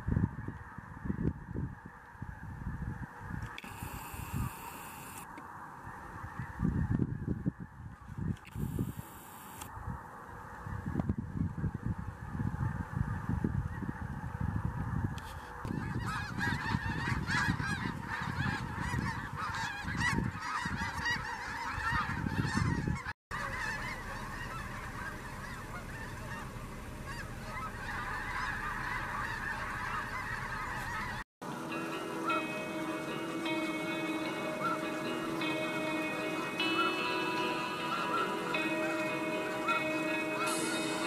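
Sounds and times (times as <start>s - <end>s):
geese honking: 0.2s - 41.0s
low rumble: 23.4s - 31.2s.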